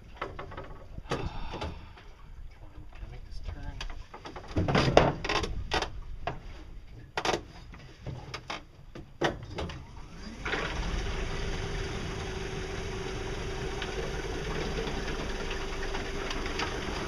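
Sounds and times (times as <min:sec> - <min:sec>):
electric boat motor humming: 0:10.0 - 0:17.0
water washing: 0:10.5 - 0:17.0.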